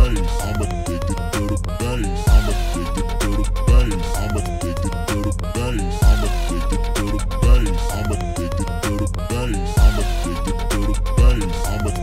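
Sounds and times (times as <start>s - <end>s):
deep bass hit: 0.0s - 0.4s, 2.3s - 4.3s, 6.0s - 8.0s, 9.8s - 11.8s
electronic music with beat: 0.0s - 12.0s.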